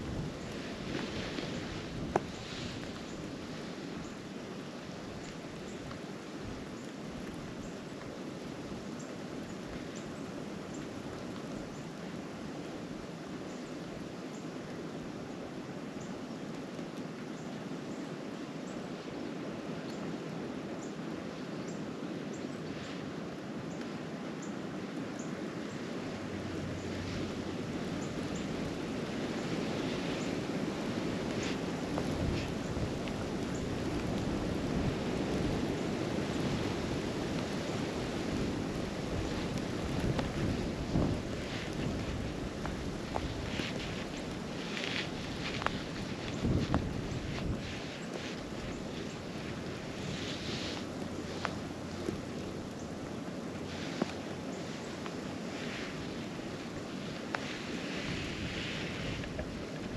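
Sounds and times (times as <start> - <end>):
wind rushing over microphone: 0.0 - 8.9, 22.6 - 59.9
faint light ticks: 0.4 - 3.3, 5.2 - 11.9, 16.0 - 18.0, 23.7 - 25.4, 31.1 - 59.9.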